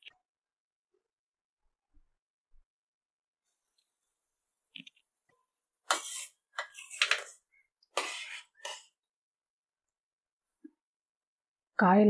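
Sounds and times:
metal spoon scraping a pot: 0:05.8 - 0:09.0.

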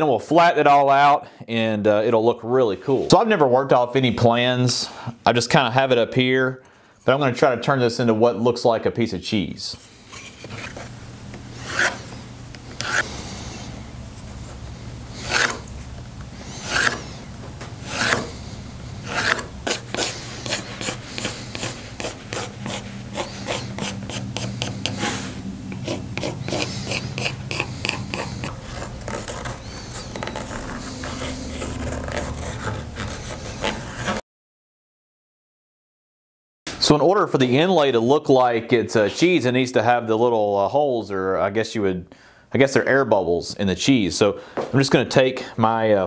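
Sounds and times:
pencil scratching on wood: 0:11.6 - 0:12.1, 0:12.8 - 0:13.1, 0:15.1 - 0:15.7, 0:16.6 - 0:17.1, 0:17.8 - 0:18.4, 0:19.0 - 0:34.2.

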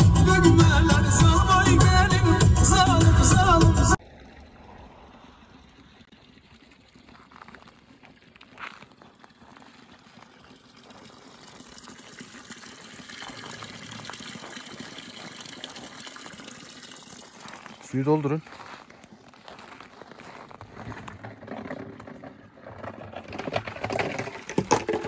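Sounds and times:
fountain water splashing: 0:04.0 - 0:18.6.

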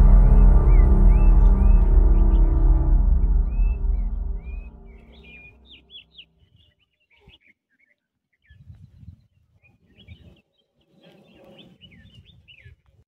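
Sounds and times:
background music: 0:00.0 - 0:05.8
small birds chirping: 0:05.1 - 0:12.8.

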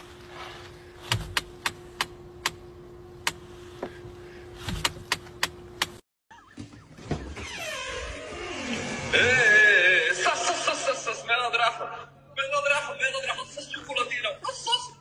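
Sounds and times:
faint steady hum: 0:00.0 - 0:06.0
steering wheel clicks: 0:04.6 - 0:06.0.

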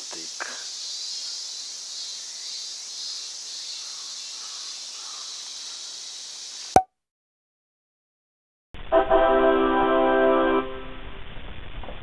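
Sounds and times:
insects chorus: 0:00.0 - 0:06.7.

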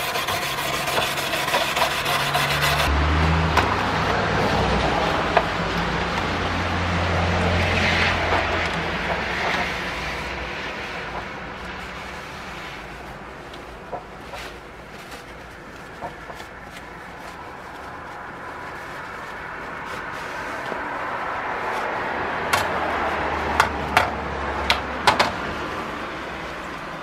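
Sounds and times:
paper towel rubbing saw blade: 0:00.0 - 0:02.9.

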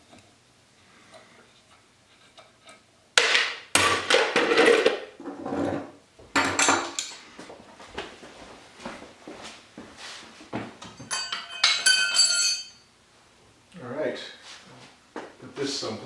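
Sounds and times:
metal tools clattering and scraping: 0:10.8 - 0:12.8.

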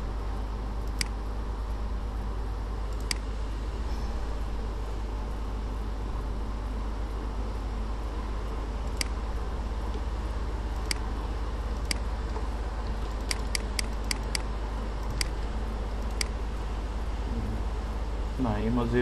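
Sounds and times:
steady low hum: 0:00.0 - 0:19.0
computer mouse clicking: 0:00.8 - 0:01.2, 0:02.9 - 0:03.3, 0:08.8 - 0:09.2, 0:10.8 - 0:11.1, 0:11.7 - 0:12.4, 0:13.0 - 0:16.4.

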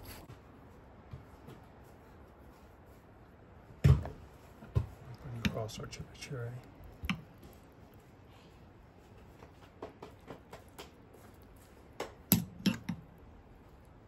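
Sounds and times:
metal spoon clicking and tapping: 0:12.3 - 0:13.0.

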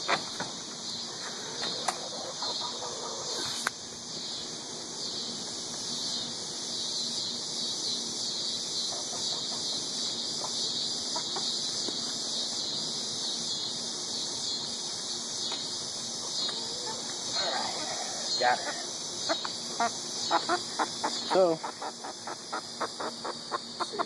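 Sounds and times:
steady high-pitched hiss: 0:00.0 - 0:24.0
hen squawking: 0:19.8 - 0:24.0.

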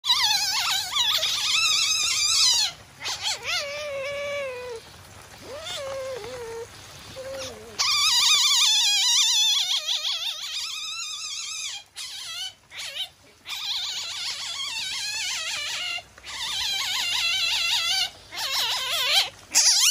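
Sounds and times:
civet high-pitched wavering cries: 0:05.4 - 0:19.9.

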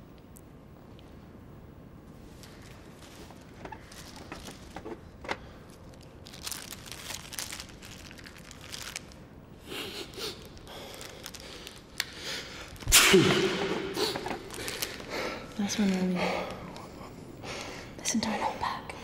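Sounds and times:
soft rustling: 0:02.1 - 0:09.2.

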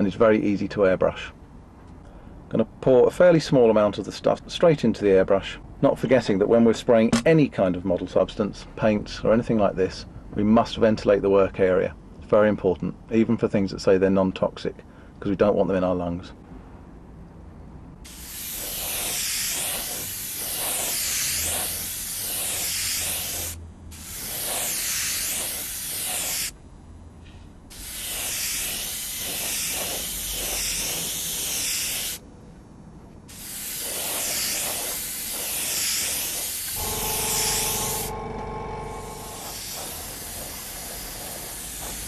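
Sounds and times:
airbrush hissing: 0:18.1 - 0:26.6, 0:27.7 - 0:32.2, 0:33.3 - 0:42.0.

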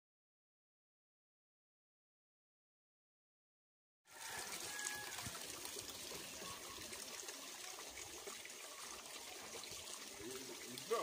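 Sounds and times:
fountain water trickling: 0:04.1 - 0:11.0.

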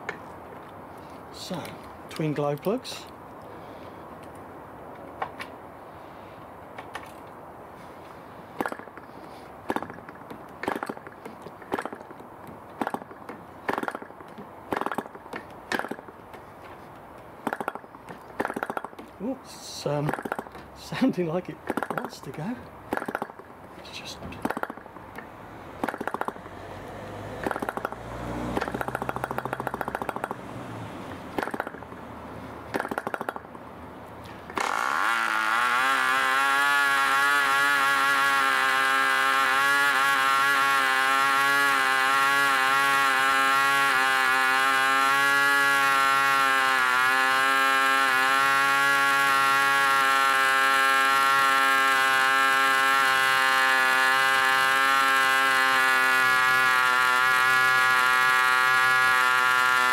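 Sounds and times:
model engine firing and running: 0:08.5 - 0:12.2, 0:12.8 - 0:16.1, 0:17.4 - 0:30.4, 0:31.3 - 0:32.0, 0:32.7 - 0:33.5, 0:34.5 - 0:59.9.

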